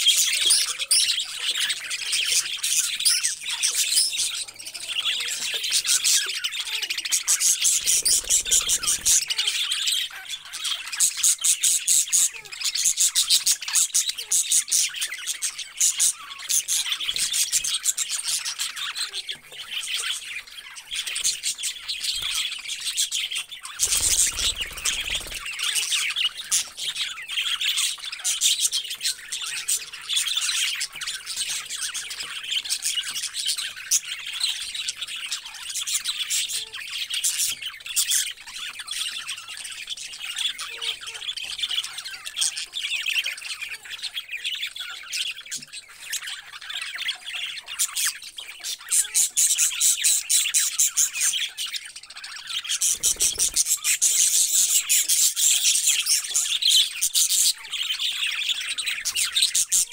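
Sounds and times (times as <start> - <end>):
budgerigars chirping and chattering: 0.0 - 59.9.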